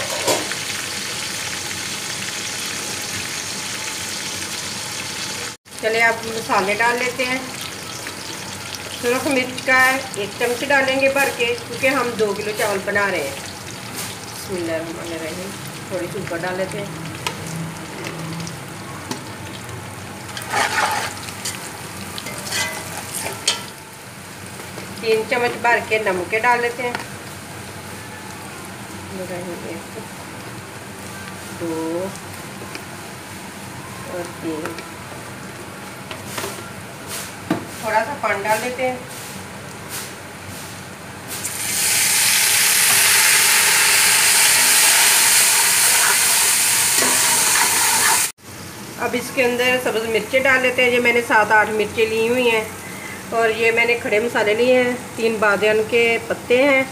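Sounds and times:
onions sizzling in hot fat: 0.0s - 36.4s, 37.1s - 56.7s
spoon stirring in a pot: 22.2s - 23.7s.

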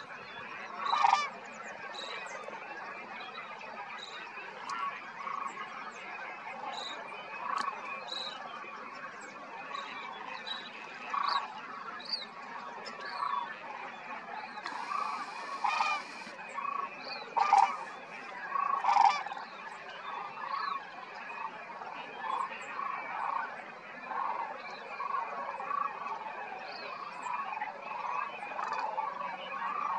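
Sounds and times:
cranes calling: 14.6s - 16.4s, 17.4s - 19.2s.

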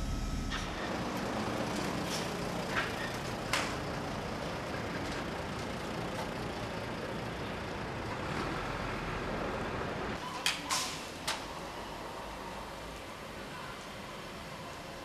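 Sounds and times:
motor vehicle rumble: 0.0s - 10.2s.

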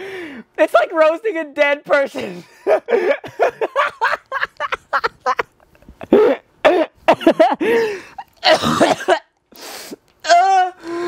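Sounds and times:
young man laughing hard: 2.4s - 9.2s
man gasping and coughing: 6.0s - 9.2s.

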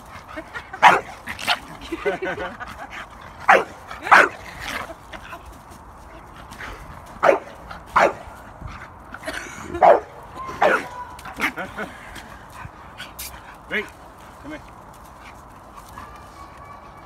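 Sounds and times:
dogs barking: 0.0s - 4.9s, 7.2s - 8.4s, 9.7s - 11.8s.

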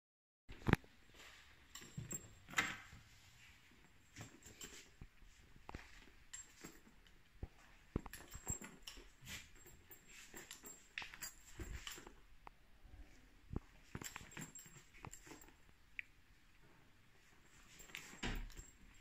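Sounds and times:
handling noise: 0.5s - 15.9s
door with keys pushed open: 17.8s - 19.0s.

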